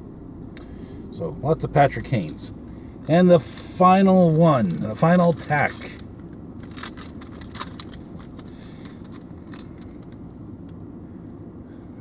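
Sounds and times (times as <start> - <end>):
car cabin rumble: 0.0 - 11.3
card wrapper crinkling and tearing: 4.3 - 6.0, 6.6 - 10.0.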